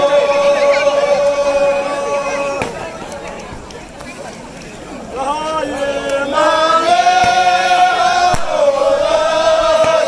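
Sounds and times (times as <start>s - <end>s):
group of voices singing held notes: 0.0s - 2.8s, 5.1s - 10.0s.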